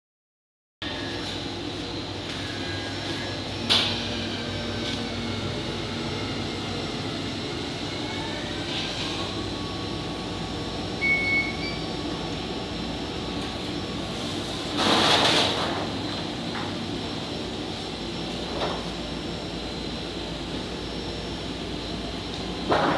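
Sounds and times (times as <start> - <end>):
machine running hum: 0.8 - 22.9
short high beep: 11.0 - 11.9.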